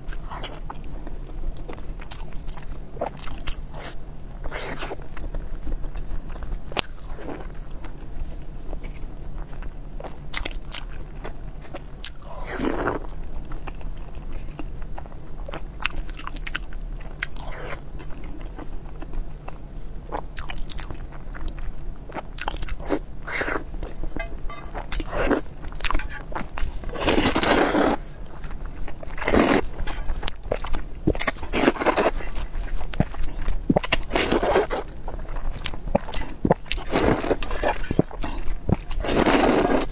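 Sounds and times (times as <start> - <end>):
biting and chewing: 0.0 - 39.9
slurping noodles: 26.8 - 28.1, 29.2 - 29.8, 31.5 - 32.5, 34.0 - 34.9, 36.8 - 38.1, 38.9 - 39.9.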